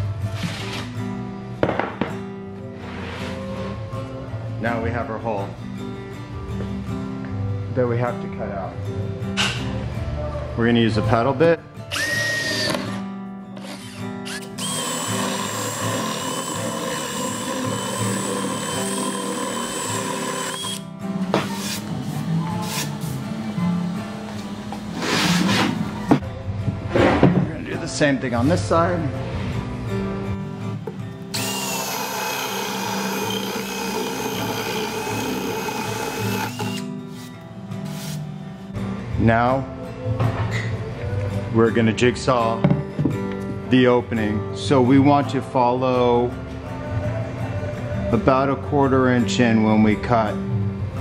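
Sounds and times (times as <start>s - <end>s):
power drill boring into wood panel: 11.9s - 13.0s, 13.6s - 20.8s, 31.4s - 36.9s.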